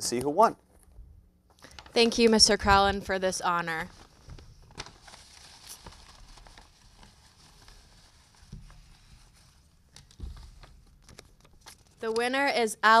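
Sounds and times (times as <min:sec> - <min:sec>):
paper envelope rustling: 0:03.8 - 0:12.2.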